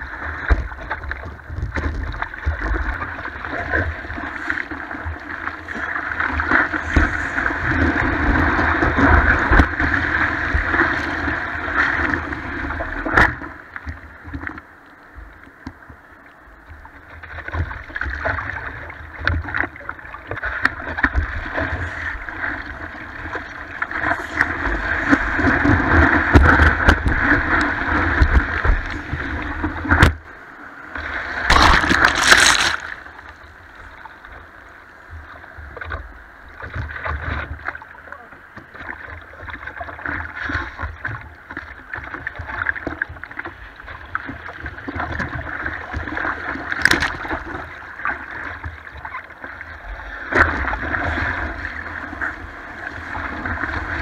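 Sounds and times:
water lapping: 17.4s - 30.4s
whitewater rushing and splashing: 20.5s - 33.3s.

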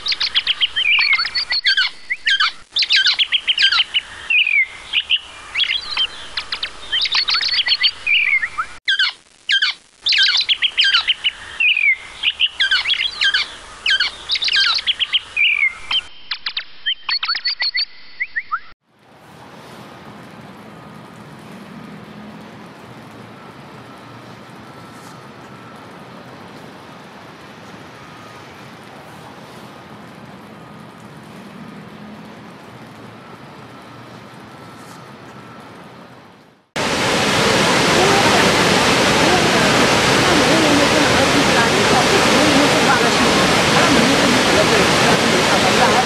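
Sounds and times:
songbirds singing: 0.0s - 18.7s.

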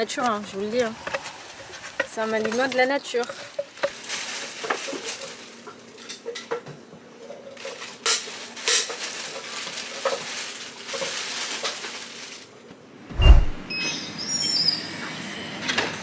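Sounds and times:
plastic bag rustling: 0.2s - 5.7s, 7.6s - 12.5s
loud low thump: 13.1s - 13.7s.

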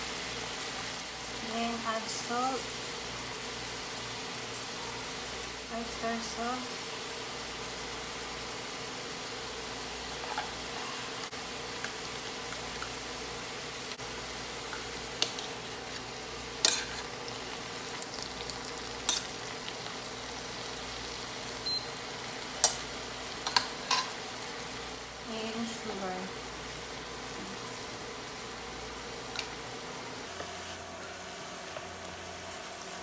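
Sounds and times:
vegetables sizzling in a frying pan: 0.0s - 33.0s.

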